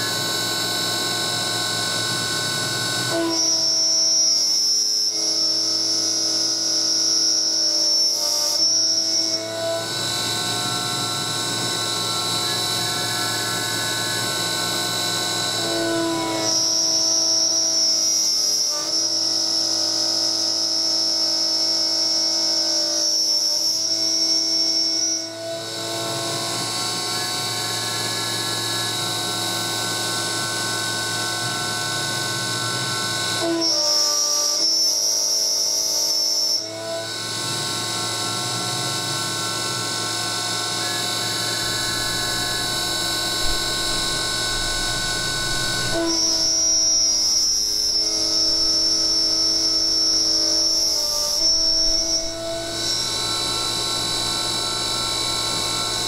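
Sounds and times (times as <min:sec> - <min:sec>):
milling machine whine: 0:00.0 - 0:56.0
shrill high tone: 0:41.1 - 0:56.0.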